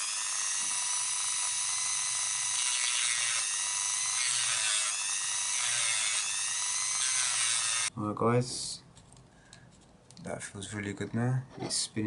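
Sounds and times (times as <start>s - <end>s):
rotary tool grinding plastic: 0.0s - 7.9s.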